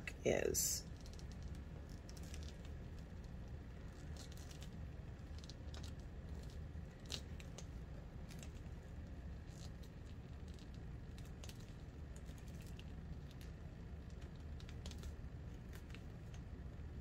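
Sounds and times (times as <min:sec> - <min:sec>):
steady low hum: 0:00.0 - 0:17.0
vinyl rustling and crinkling: 0:00.9 - 0:16.5.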